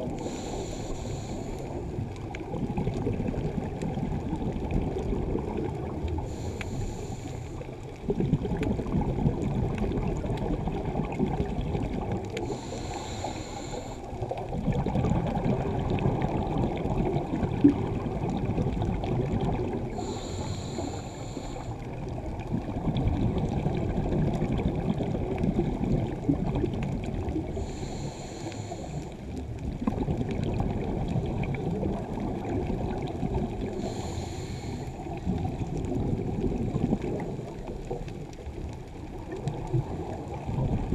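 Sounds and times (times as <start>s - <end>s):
hissing regulator inhale: 0.1s - 2.0s, 6.2s - 7.8s, 12.4s - 14.3s, 19.9s - 22.0s, 27.5s - 29.3s, 33.6s - 35.2s
exhaled bubbles rushing: 1.7s - 6.4s, 7.6s - 12.7s, 14.1s - 20.2s, 21.7s - 27.8s, 29.3s - 34.0s, 34.9s - 40.9s.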